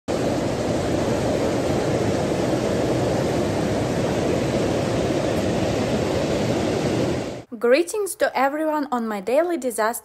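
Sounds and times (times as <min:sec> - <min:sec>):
floodwater rushing: 0:00.1 - 0:07.5.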